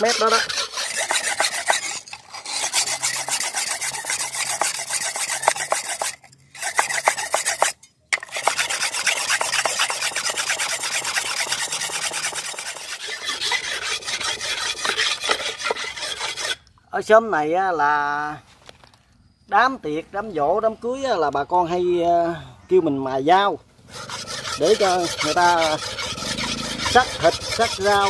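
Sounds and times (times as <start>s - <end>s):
knife scraping on whetstone: 0.0s - 16.6s, 23.9s - 28.0s.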